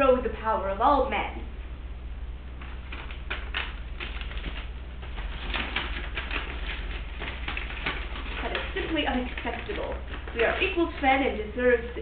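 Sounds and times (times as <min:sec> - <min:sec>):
paper rustling and crinkling: 0:02.6 - 0:12.0.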